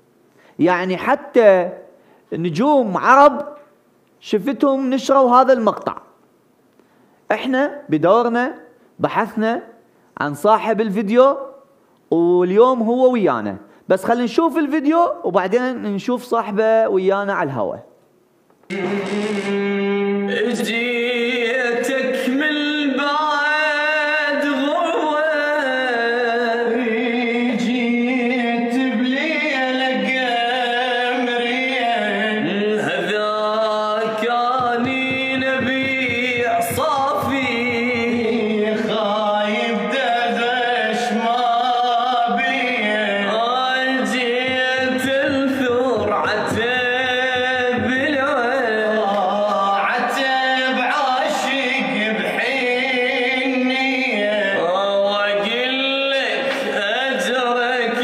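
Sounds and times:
man singing solo: 0:33.3 - 0:39.5, 0:43.8 - 0:49.7.

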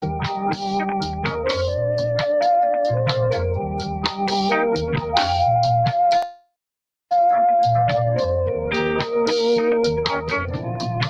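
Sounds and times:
organ-like keyboard notes: 0:00.0 - 0:06.4, 0:07.1 - 0:11.0
stepping bass line: 0:00.1 - 0:06.1, 0:09.8 - 0:11.0
sharp percussion hits: 0:04.1 - 0:06.4.

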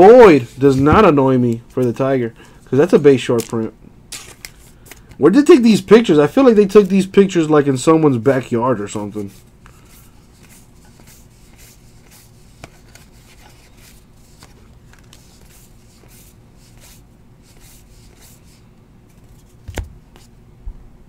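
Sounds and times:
cards sliding off a stack: 0:03.4 - 0:05.2.

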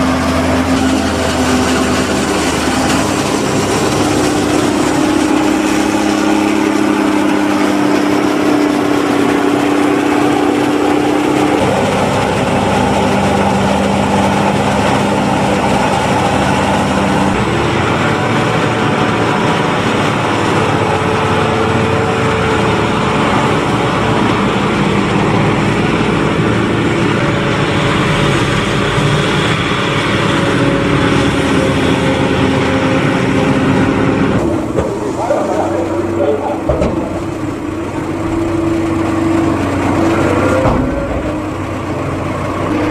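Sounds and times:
tractor engine running: 0:00.0 - 0:42.9.

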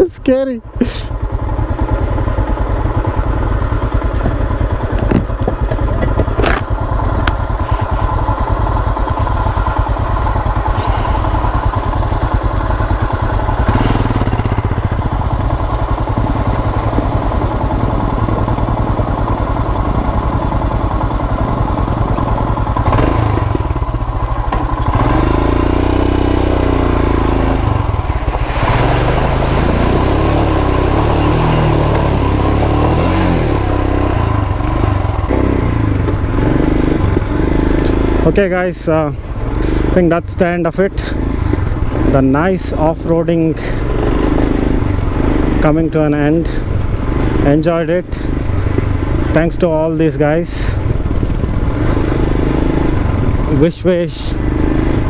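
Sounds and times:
motorcycle engine running: 0:00.0 - 0:55.0
water splashing: 0:28.0 - 0:30.7.

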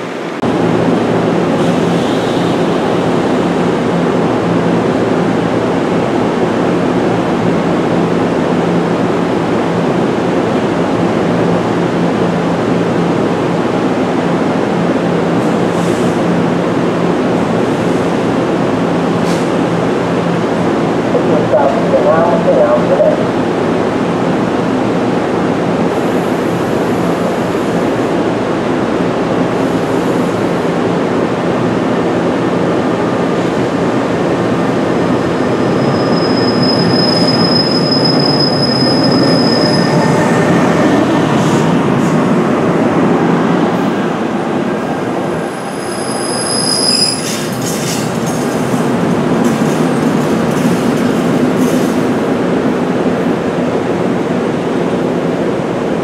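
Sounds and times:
train wheels rumbling on rail: 0:00.0 - 0:56.0
high wheel squeals: 0:35.5 - 0:40.4, 0:45.6 - 0:48.1.

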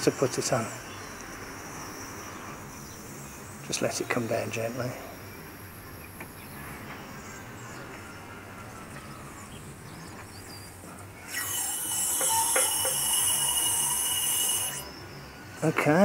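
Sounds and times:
hydraulic valve hissing: 0:11.3 - 0:14.9.

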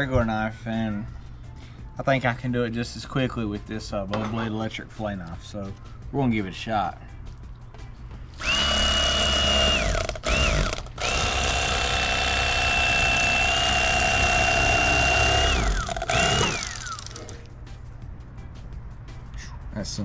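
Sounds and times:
electric fillet knife whining: 0:08.4 - 0:17.4.

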